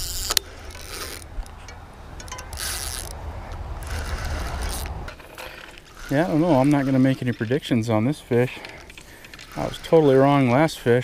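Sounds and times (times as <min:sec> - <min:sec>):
spinning reel being cranked: 0:00.0 - 0:01.2, 0:02.5 - 0:03.2, 0:03.8 - 0:07.6, 0:08.9 - 0:10.7
low wind rumble: 0:00.0 - 0:09.8.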